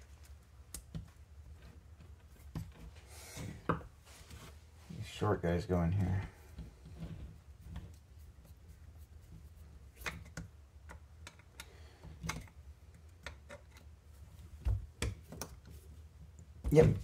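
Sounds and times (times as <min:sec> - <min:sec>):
plastic parts and screws clicking: 0:10.0 - 0:14.0.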